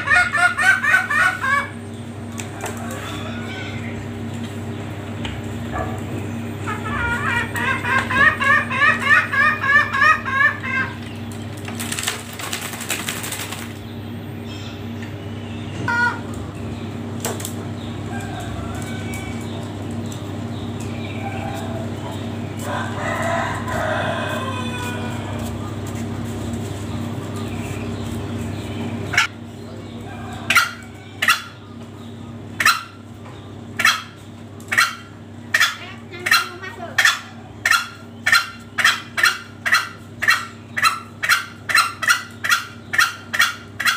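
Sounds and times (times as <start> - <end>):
wings flapping and rustling: 11.2 - 13.9.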